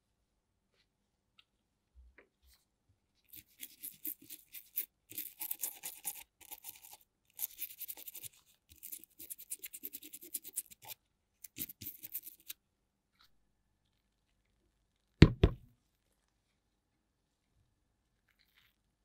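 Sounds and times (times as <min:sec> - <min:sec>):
toothbrush scrubbing circuit board: 0:03.3 - 0:12.6.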